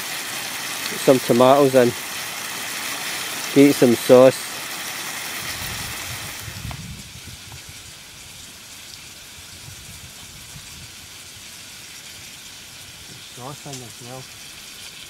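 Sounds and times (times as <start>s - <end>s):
camping stove burner hissing: 0.0s - 15.0s
food frying in a pot: 0.0s - 15.0s.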